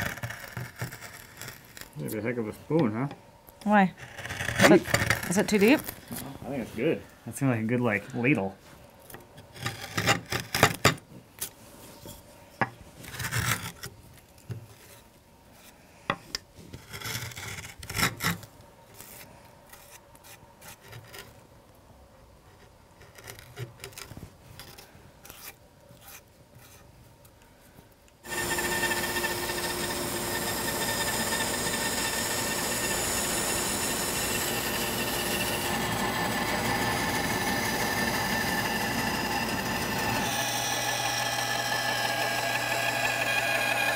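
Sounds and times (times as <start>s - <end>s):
hand tools scraping wood: 4.0s - 5.8s, 23.0s - 26.9s, 28.2s - 40.4s
bandsaw cutting wood: 28.2s - 43.9s.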